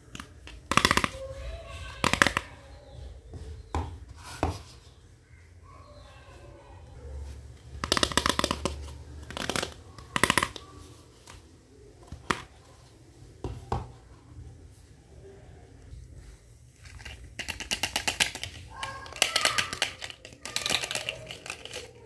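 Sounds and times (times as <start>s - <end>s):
plastic toy pieces clicking: 0.0s - 1.2s, 2.0s - 2.5s, 7.8s - 10.6s, 16.8s - 22.0s.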